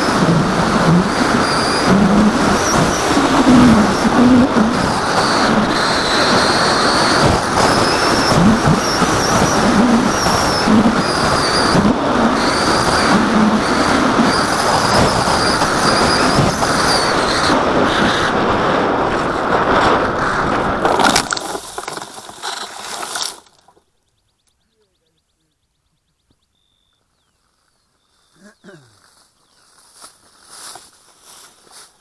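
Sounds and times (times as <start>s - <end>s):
wind rush: 0.0s - 22.3s
electric motor and propeller whine: 0.0s - 23.6s.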